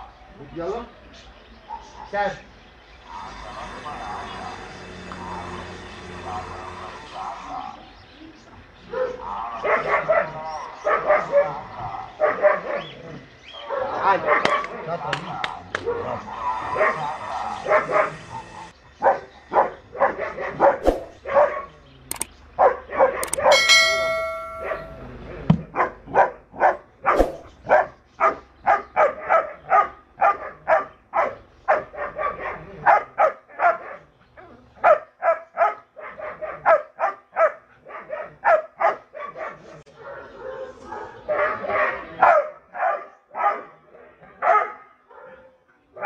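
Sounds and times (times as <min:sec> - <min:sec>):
dog barking: 0:01.7 - 0:02.2, 0:06.2 - 0:07.9, 0:08.9 - 0:13.0, 0:13.6 - 0:21.8, 0:22.6 - 0:25.0, 0:25.7 - 0:46.0
brief ringing tone: 0:23.5 - 0:25.0.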